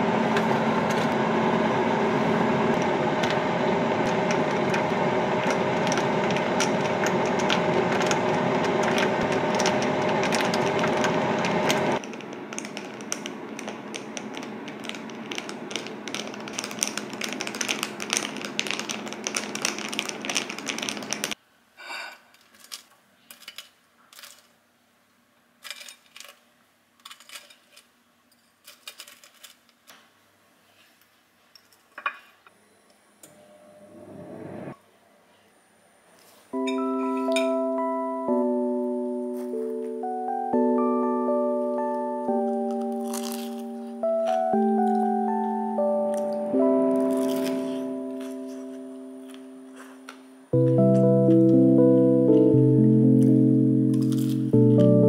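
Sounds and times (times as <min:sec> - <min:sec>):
loud steady whirring: 0:00.0 - 0:12.0.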